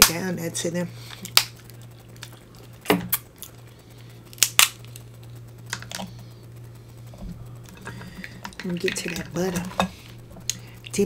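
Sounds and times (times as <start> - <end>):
crab shells cracking: 1.0 - 6.1.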